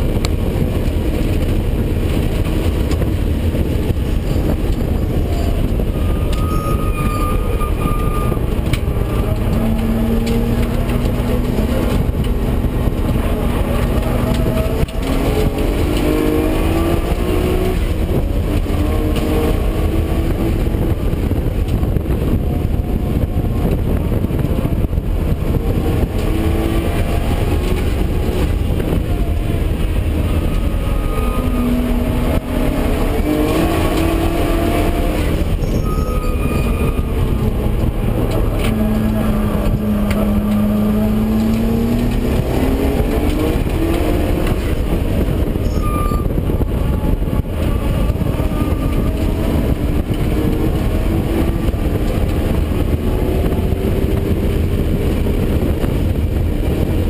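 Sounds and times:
car engine revving: 0.0s - 57.0s
road and wind noise: 0.0s - 57.0s.

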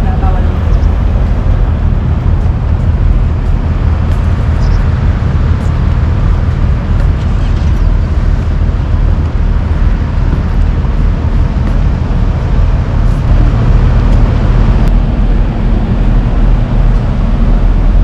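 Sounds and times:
low vehicle rumble: 0.0s - 18.0s.

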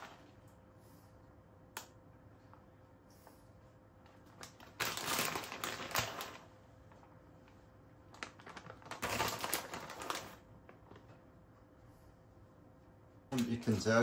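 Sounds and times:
plastic bag crinkling: 4.2s - 6.5s, 8.0s - 11.2s.

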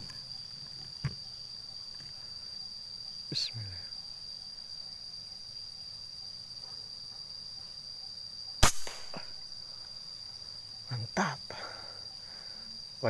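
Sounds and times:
high-pitched insect drone: 0.0s - 13.0s
air rifle shot crack: 8.6s - 9.4s.

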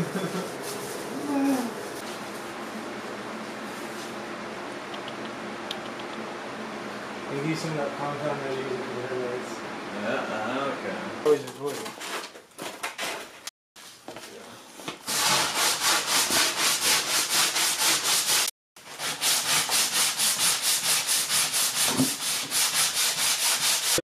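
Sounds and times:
sanding block scraping back and forth: 15.1s - 24.0s.

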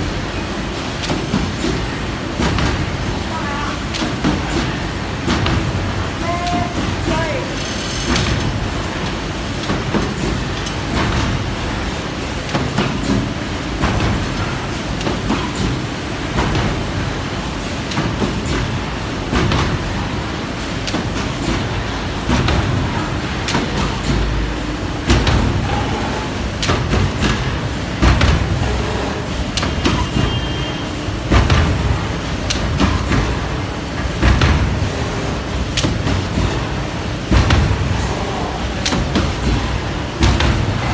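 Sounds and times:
machinery mechanical din: 0.0s - 40.9s
sharp machine clicks and knocks: 38.7s - 40.9s.

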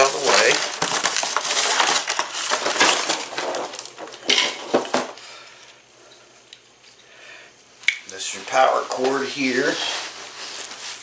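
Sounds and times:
packing paper rustling: 0.0s - 5.0s, 8.3s - 11.0s.

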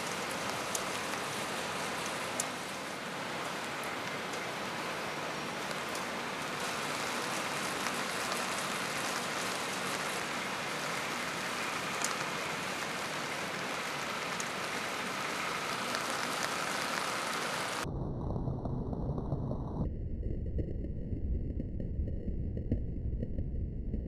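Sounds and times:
steady rain hiss: 0.0s - 17.8s
deep low rumble: 17.8s - 24.0s.

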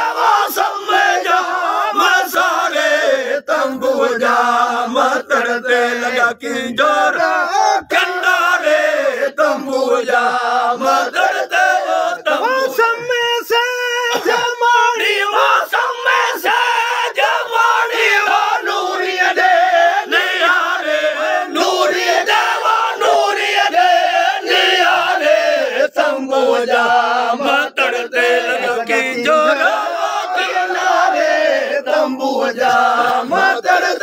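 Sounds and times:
men singing together: 0.0s - 13.0s, 14.0s - 34.0s.

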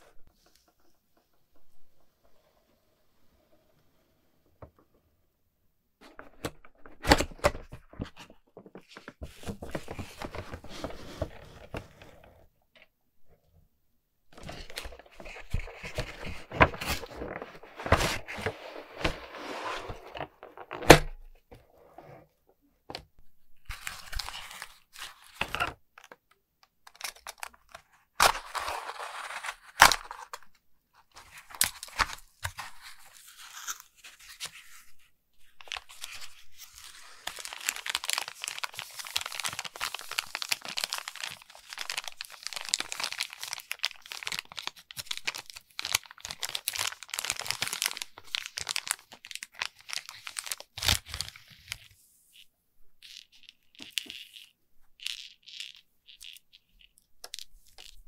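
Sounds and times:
plastic packaging crinkling: 35.6s - 51.8s.

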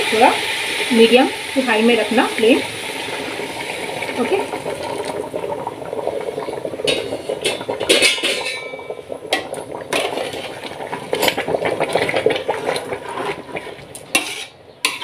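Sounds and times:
hot water poured into metal pot: 0.0s - 15.0s
ladle clinking against pot: 6.9s - 10.1s, 14.2s - 15.0s.

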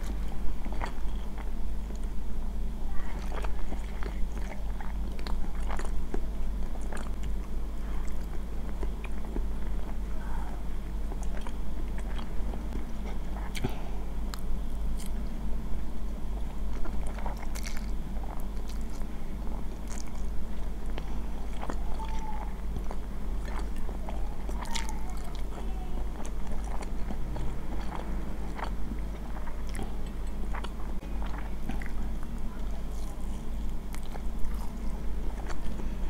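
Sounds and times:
chewing and slurping noodles: 3.1s - 7.4s, 16.4s - 35.9s.

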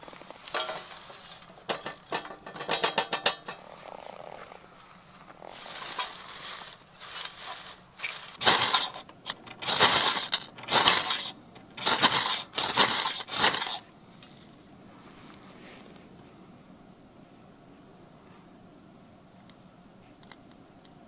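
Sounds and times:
wood shavings rustling: 0.0s - 15.1s.

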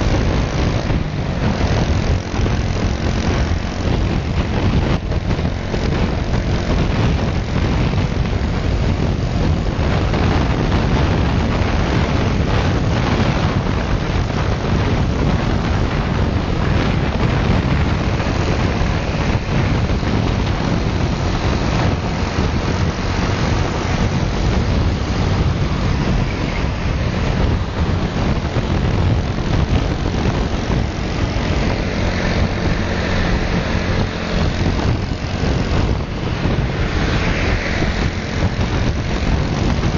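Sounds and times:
motorcycle engine running: 0.0s - 39.9s
other motorcycle engines: 0.0s - 39.9s
road noise: 0.0s - 39.9s
wind rushing over microphone: 0.0s - 39.9s.

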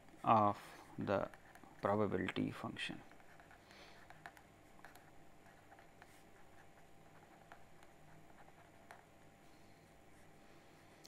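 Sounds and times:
pen writing on paper: 1.2s - 1.6s, 3.1s - 9.1s.

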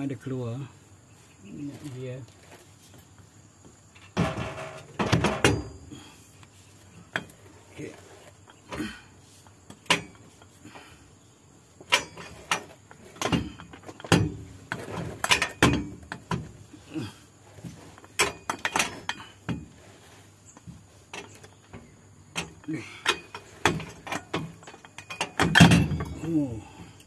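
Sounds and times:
metal clanks and knocks: 4.0s - 6.0s, 7.0s - 8.8s, 9.6s - 10.6s, 11.8s - 16.9s, 17.5s - 27.0s.

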